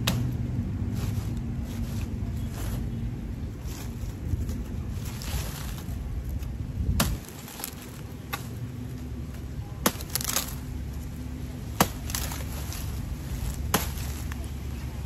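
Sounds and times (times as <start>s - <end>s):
machete chopping stalk: 0.0s - 0.4s, 6.9s - 8.6s, 9.8s - 10.6s, 11.7s - 14.4s.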